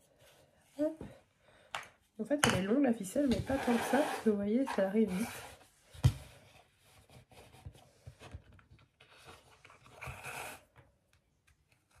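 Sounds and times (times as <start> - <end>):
string pulled through wooden beads: 3.4 - 5.6.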